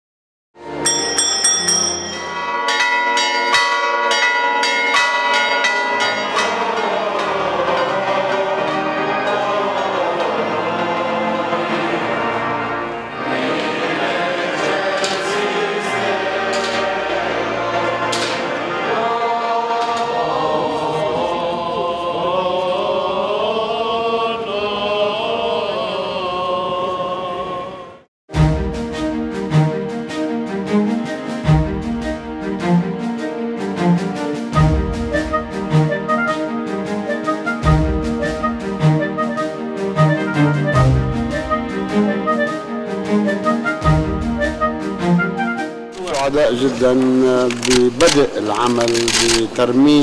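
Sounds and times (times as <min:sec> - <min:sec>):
church bells ringing: 0:00.7 - 0:11.6
choir chanting: 0:04.7 - 0:28.1, 0:29.4 - 0:45.8.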